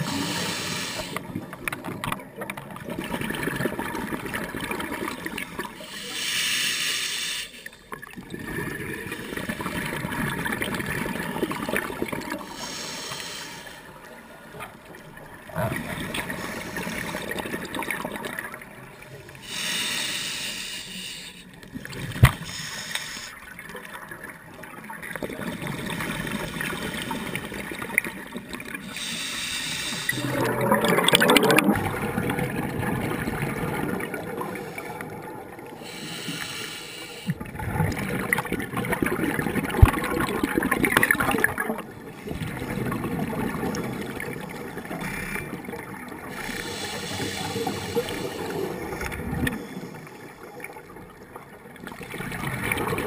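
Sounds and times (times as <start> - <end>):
regulator air hiss: 0.0 - 1.2, 5.8 - 7.7, 12.5 - 13.9, 19.4 - 21.5, 22.4 - 23.4, 28.9 - 30.2, 35.8 - 37.4, 46.4 - 48.7
exhaled bubbles gurgling: 0.0 - 6.0, 7.8 - 12.8, 13.8 - 19.6, 23.5 - 53.0.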